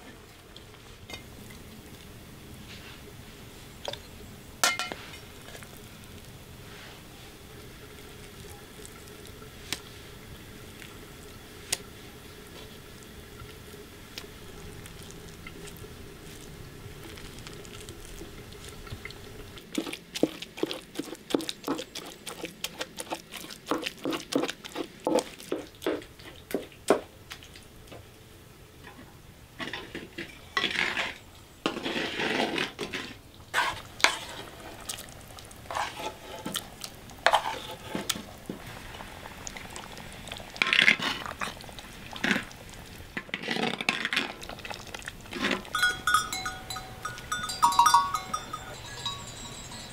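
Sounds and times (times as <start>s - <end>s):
wooden spoon scraping clay dish: 19.8s - 26.0s, 29.6s - 34.8s, 35.7s - 36.6s, 37.3s - 38.1s
wooden pestle pounding pumpkin: 19.8s - 26.6s
low steady hum: 44.4s - 49.9s.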